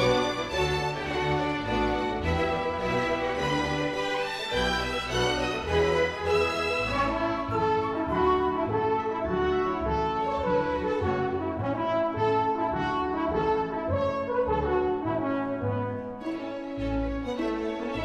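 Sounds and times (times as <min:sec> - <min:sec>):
french horns playing melody: 0:00.0 - 0:18.0
orchestra playing dance tune: 0:00.0 - 0:18.0.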